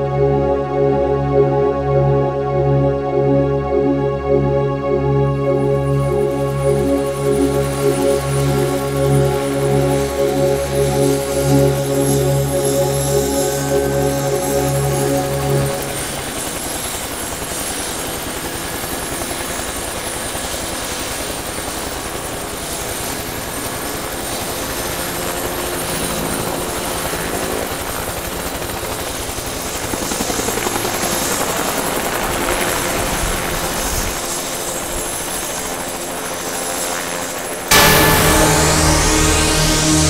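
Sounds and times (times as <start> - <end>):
music: 0.0 - 17.3, 37.7 - 40.0
helicopter rotor chop and engine: 0.0 - 40.0.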